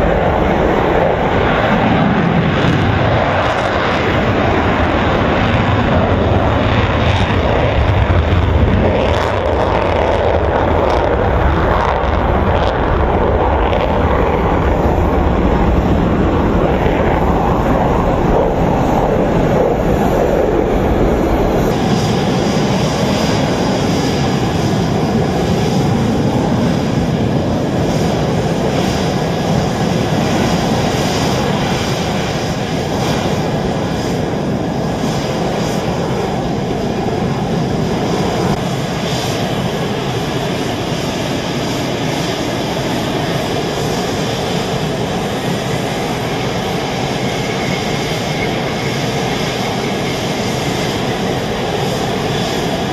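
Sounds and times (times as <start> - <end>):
jet engine roar: 0.0 - 52.9.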